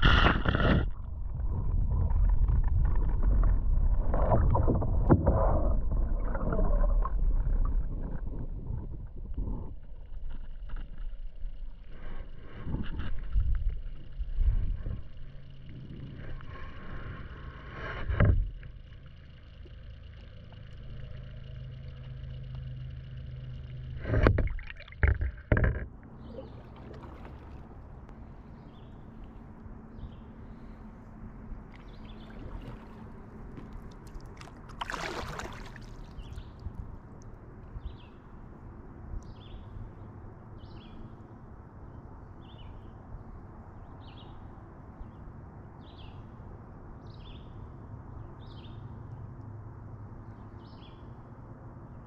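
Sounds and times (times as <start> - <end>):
muffled underwater flow: 0.0 - 40.1.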